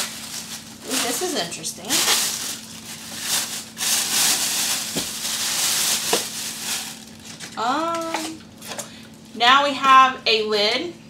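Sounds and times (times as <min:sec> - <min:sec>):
plastic bag rustling: 0:00.0 - 0:08.8.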